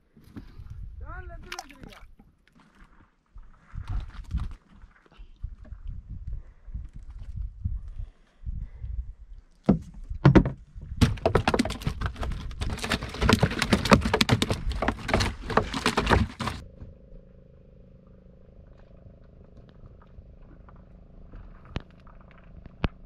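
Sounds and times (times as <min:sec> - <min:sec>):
fish flapping in a metal drum: 0:11.0 - 0:16.6
faint steady hum: 0:16.3 - 0:23.0.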